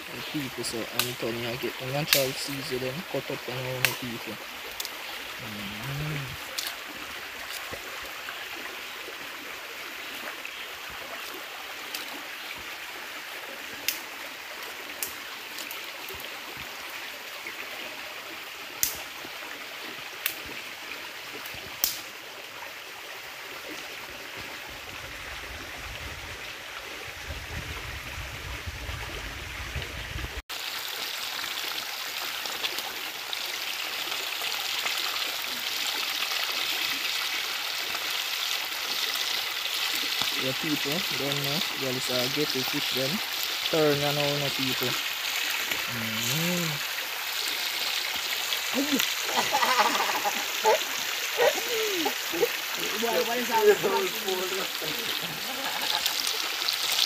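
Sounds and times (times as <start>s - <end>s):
river stream running: 0.0s - 27.7s, 28.3s - 57.0s
fish frying in oil: 30.5s - 57.0s.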